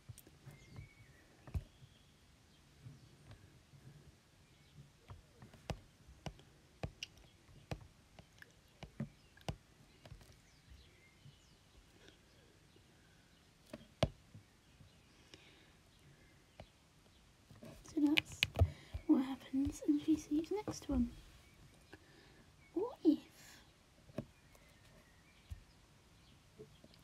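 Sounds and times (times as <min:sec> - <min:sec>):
fingertips tapping touchscreen: 0:17.6 - 0:21.3.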